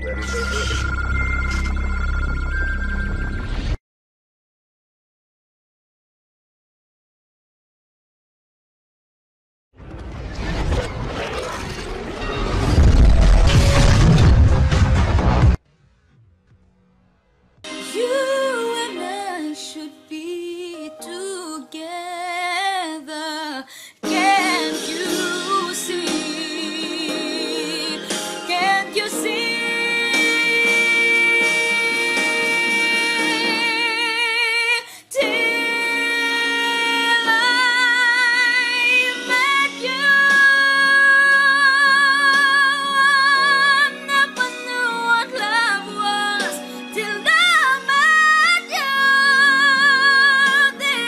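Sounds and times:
woman singing pop ballad: 17.7s - 51.0s.

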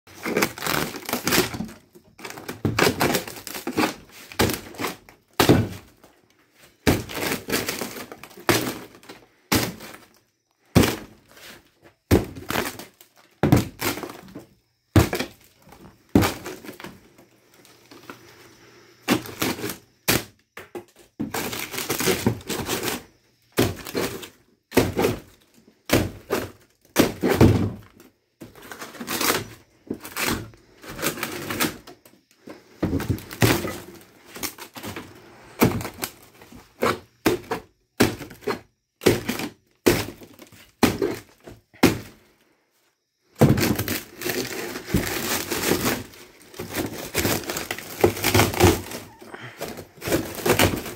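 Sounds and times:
wood cracking and breaking: 0.1s - 6.0s, 6.8s - 11.2s, 12.1s - 14.4s, 19.1s - 38.4s, 43.4s - 50.9s.

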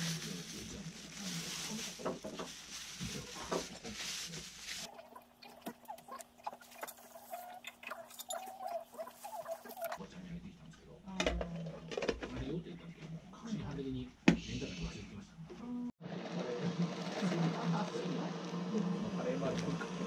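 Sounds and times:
plastic bag crinkling: 0.0s - 4.9s, 6.6s - 10.0s.

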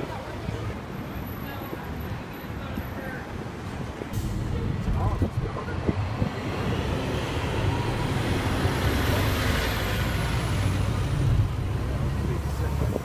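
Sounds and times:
bus engine rumbling: 0.0s - 13.0s
high whine of passing bus: 6.1s - 13.0s.

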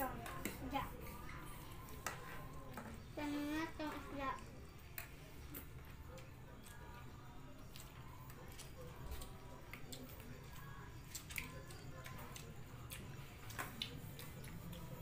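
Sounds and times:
eating with fingers on plastic plates: 0.0s - 15.0s
chewing: 4.7s - 15.0s.

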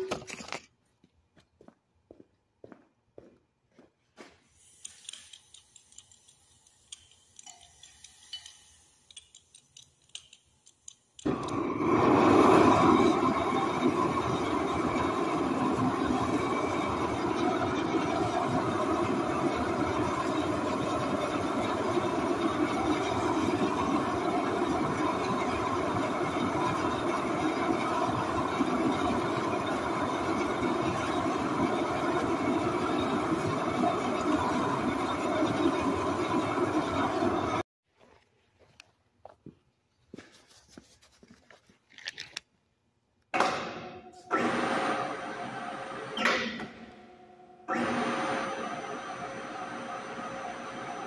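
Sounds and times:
propane torch roaring: 11.2s - 37.6s.

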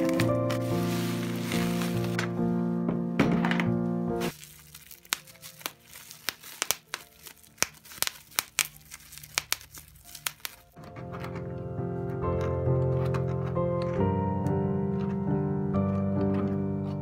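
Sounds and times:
plastic crinkling: 0.0s - 2.3s, 4.2s - 11.5s
bubble wrap popping: 0.0s - 2.4s, 4.2s - 11.5s.

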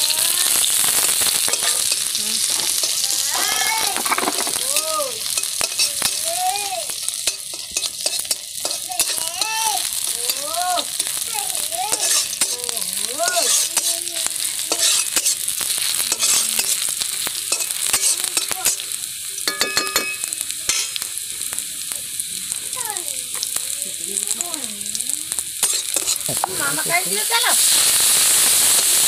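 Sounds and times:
onions sizzling in hot oil: 0.0s - 29.0s
metal spatula scraping wok: 0.6s - 6.3s, 7.0s - 9.7s, 11.9s - 18.8s, 25.6s - 27.8s.

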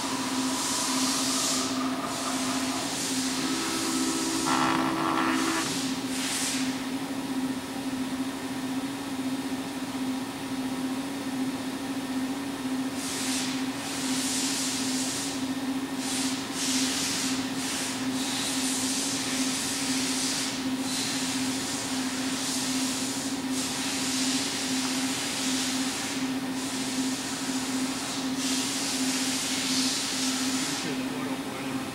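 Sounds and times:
hissing: 0.0s - 5.7s
machine humming: 0.0s - 6.1s.

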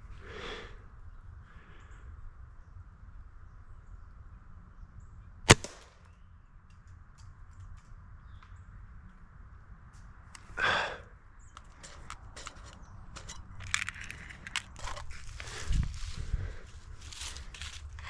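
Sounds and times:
air rifle crack: 5.5s - 6.0s
brief rustle: 11.6s - 16.3s
footsteps crunching dry leaves: 13.9s - 18.0s.

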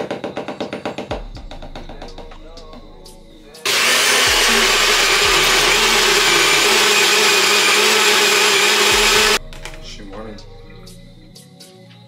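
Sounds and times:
cup blender running: 3.7s - 9.4s.

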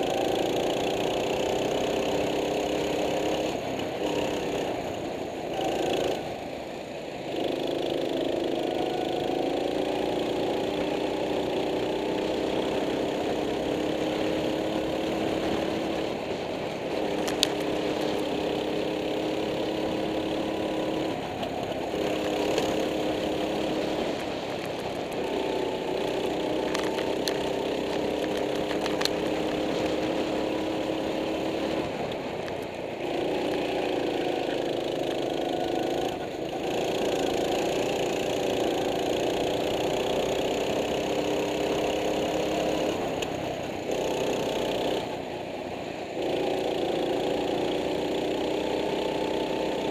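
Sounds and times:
go-kart engine revving: 0.0s - 49.9s
sharp clicks: 17.1s - 17.8s.

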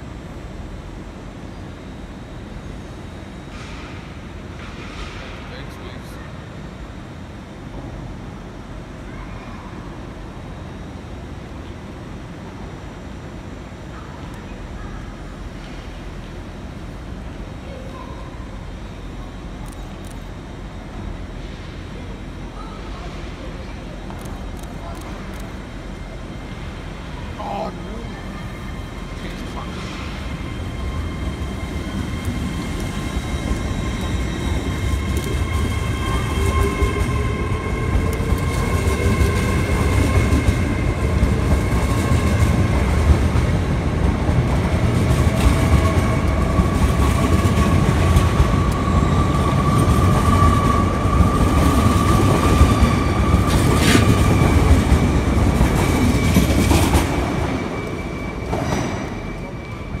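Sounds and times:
train wheels rumbling: 20.4s - 60.0s
train whine rising in pitch: 25.6s - 60.0s.

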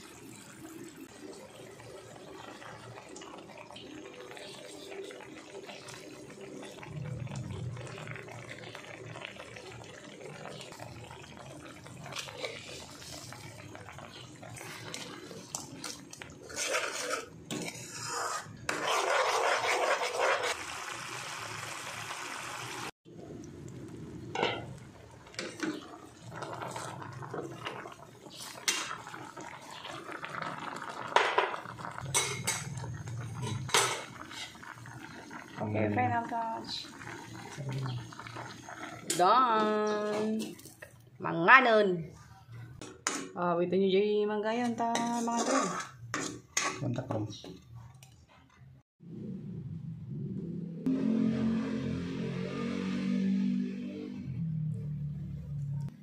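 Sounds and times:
paste sizzling: 11.9s - 22.9s
spatula scraping a metal pan: 14.6s - 20.6s, 44.9s - 46.8s
metal utensils clinking: 32.0s - 34.6s, 44.8s - 47.1s.

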